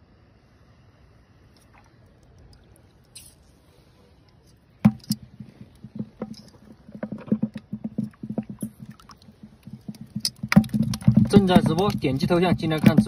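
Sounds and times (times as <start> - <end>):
water splashing in shallow mud: 1.5 - 4.0, 4.6 - 13.0
metal tongs working in mud: 4.4 - 13.0.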